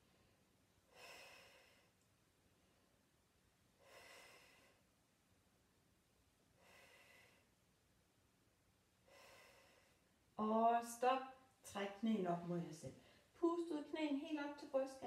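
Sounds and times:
woman breathing: 0:00.0 - 0:03.1, 0:03.7 - 0:05.0, 0:06.5 - 0:07.6, 0:09.0 - 0:10.2, 0:13.0 - 0:13.4.

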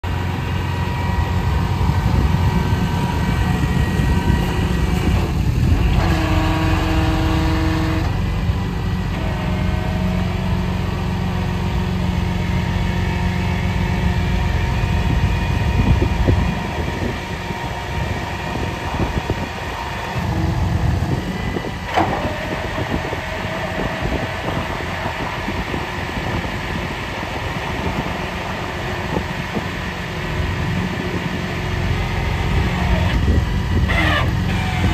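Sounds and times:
truck engine drone: 0:00.0 - 0:34.9
hydraulic whines: 0:00.1 - 0:34.9.

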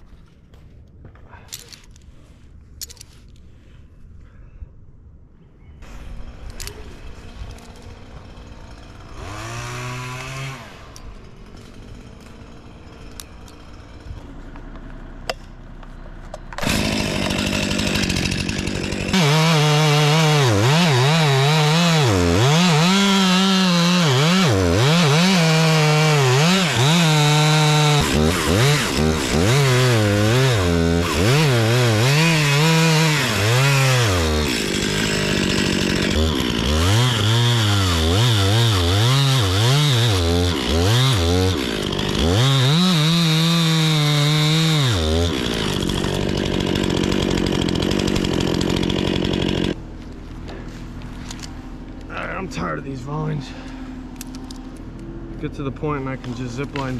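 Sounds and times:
chainsaw cutting wood: 0:05.8 - 0:15.6, 0:16.5 - 0:49.8, 0:56.0 - 0:56.9.

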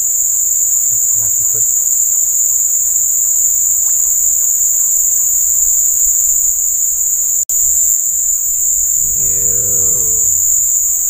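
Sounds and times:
insects shrilling: 0:07.6 - 0:11.0.

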